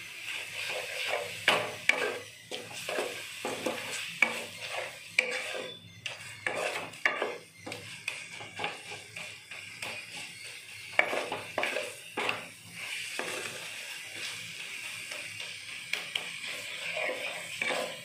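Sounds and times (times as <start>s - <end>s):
wooden spatula scraping a pan: 0.0s - 18.0s.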